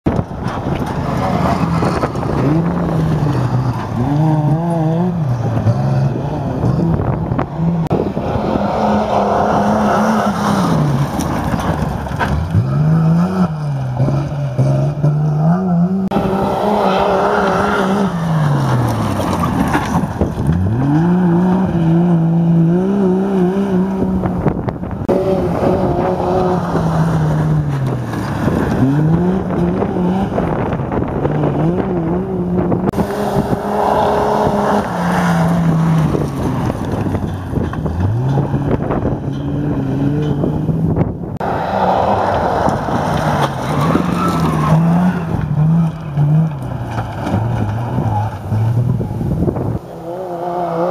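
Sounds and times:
race vehicle engines revving: 0:00.0 - 0:50.9.

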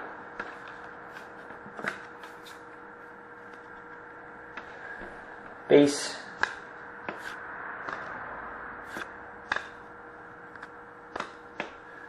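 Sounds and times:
trading cards snapping and flicking: 0:08.9 - 0:09.8, 0:10.6 - 0:11.8.

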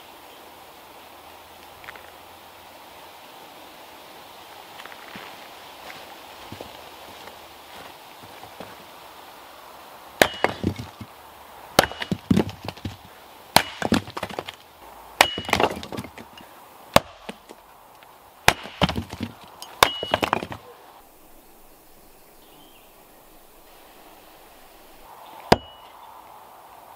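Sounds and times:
split wood pieces clattering: 0:10.2 - 0:11.2, 0:11.8 - 0:17.6, 0:18.5 - 0:20.7
axe splitting firewood: 0:10.2 - 0:17.7, 0:18.4 - 0:20.8, 0:25.5 - 0:25.8.

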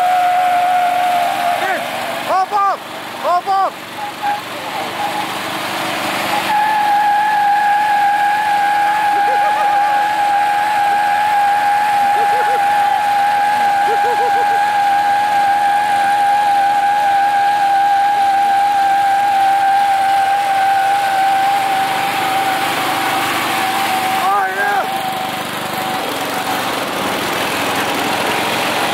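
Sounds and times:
lawn mower engine running hard: 0:00.0 - 0:28.9
high-pitched whine: 0:06.3 - 0:15.6.

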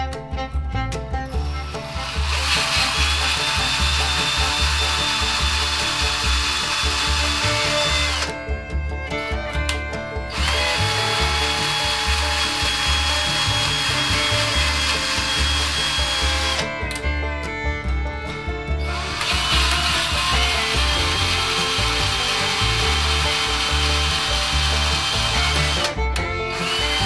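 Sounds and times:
background music with beat: 0:00.0 - 0:27.0
power drill motor whine: 0:01.4 - 0:08.3, 0:10.3 - 0:16.7, 0:19.0 - 0:27.0.

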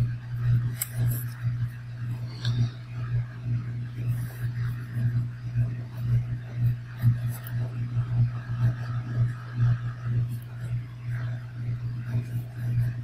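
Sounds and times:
pulsing low hum: 0:00.0 - 0:13.0
felt-tip pen scratching paper: 0:04.1 - 0:05.0, 0:05.7 - 0:07.6, 0:12.0 - 0:13.0.

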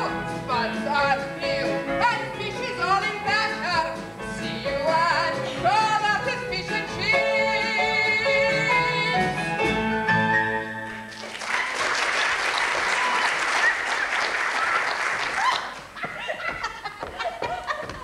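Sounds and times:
song accompaniment: 0:00.0 - 0:11.7
audience applauding: 0:10.9 - 0:16.0.

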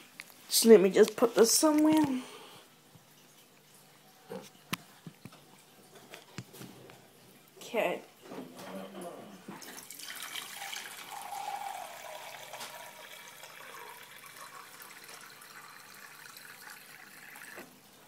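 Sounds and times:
water pouring into plastic tank: 0:09.6 - 0:17.8.

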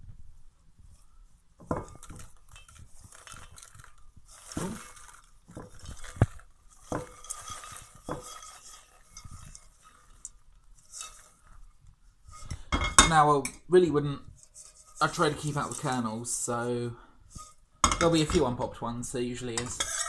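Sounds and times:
popcorn pouring into bowl: 0:01.7 - 0:11.6, 0:15.0 - 0:16.7.

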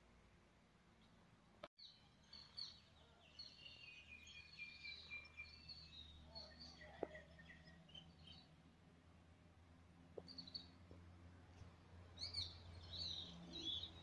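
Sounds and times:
small birds chirping: 0:01.8 - 0:08.6, 0:10.1 - 0:14.0.

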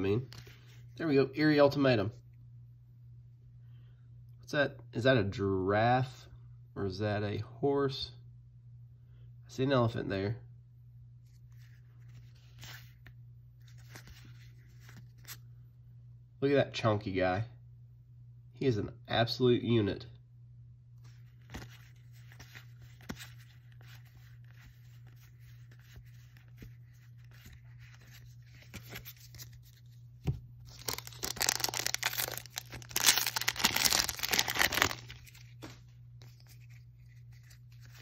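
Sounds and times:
handling trading cards: 0:00.0 - 0:00.9, 0:11.2 - 0:15.6, 0:21.0 - 0:38.0
card pack wrapper tearing: 0:30.6 - 0:38.0.

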